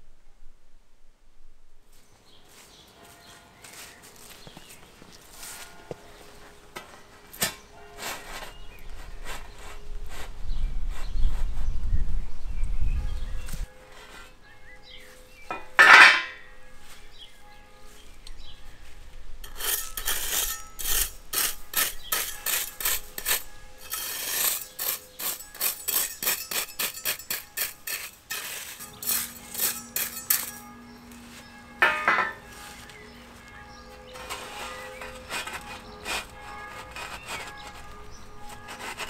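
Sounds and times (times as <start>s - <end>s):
hand scraper raking gravel: 6.8s - 10.3s, 19.4s - 33.1s, 33.7s - 39.0s.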